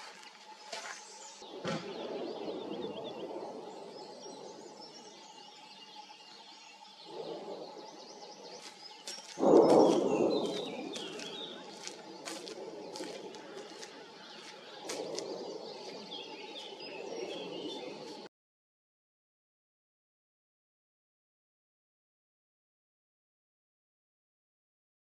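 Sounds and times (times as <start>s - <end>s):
birds chirping faintly: 0.0s - 18.3s
volcanic explosive bursts: 9.4s - 12.7s.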